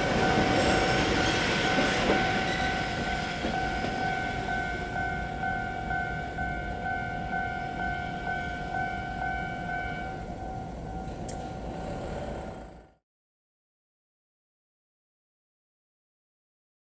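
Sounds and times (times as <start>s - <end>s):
level crossing bell ringing: 0.0s - 11.6s
electric train rumbling: 0.0s - 13.0s.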